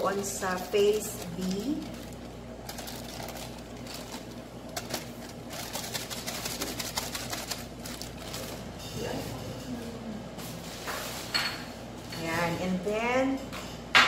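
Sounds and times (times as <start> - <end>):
plastic bag crinkling: 0.0 - 8.8
steady low hum: 0.0 - 14.0.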